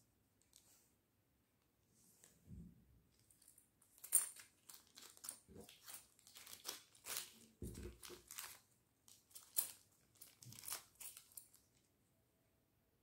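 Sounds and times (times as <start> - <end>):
plastic bags crinkling: 3.1 - 11.8.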